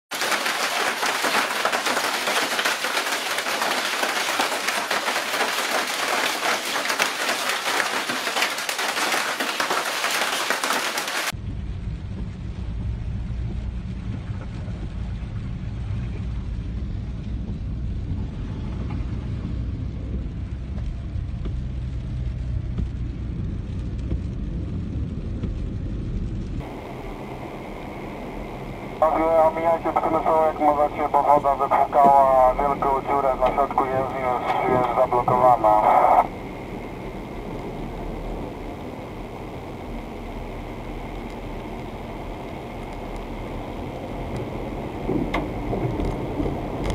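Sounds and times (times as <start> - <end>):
hail and rain on a tiled roof: 0.1 - 11.3
storm rumble inside a car: 11.3 - 46.9.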